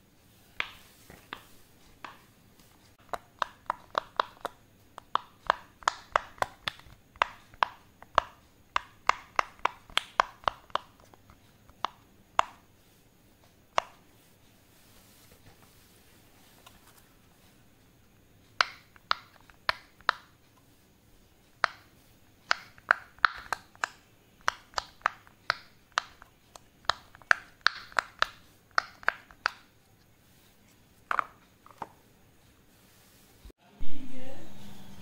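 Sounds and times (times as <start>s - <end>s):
fidget toy bubbles popping: 3.0s - 12.6s, 22.5s - 29.7s.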